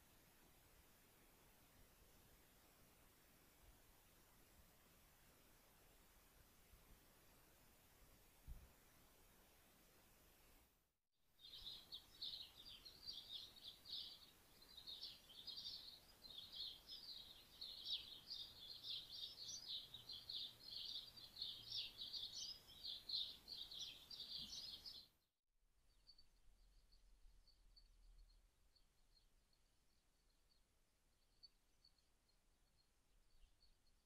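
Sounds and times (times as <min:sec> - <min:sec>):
small birds twittering: 0:11.4 - 0:25.1.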